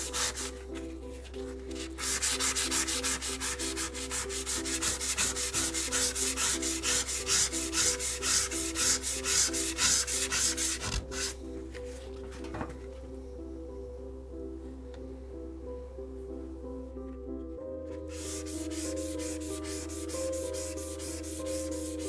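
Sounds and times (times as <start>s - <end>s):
sandpaper rubbing on steel blade: 2.0s - 11.4s, 18.1s - 22.0s.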